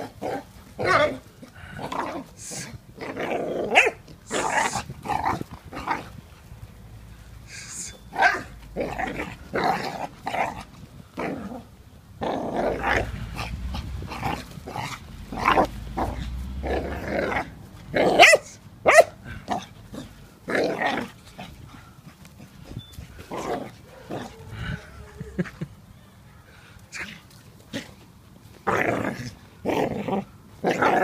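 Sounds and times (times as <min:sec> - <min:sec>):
puppy barking and growling: 0:00.0 - 0:06.1, 0:08.1 - 0:21.6, 0:23.3 - 0:25.6, 0:28.6 - 0:31.0.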